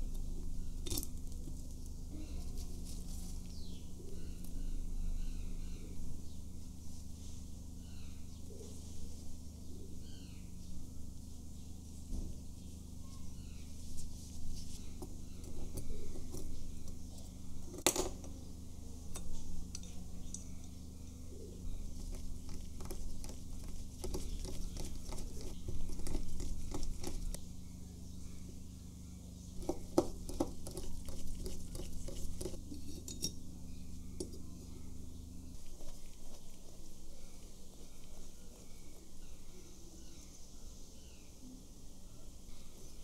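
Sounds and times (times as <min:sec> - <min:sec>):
steady low hum: 0:00.0 - 0:43.0.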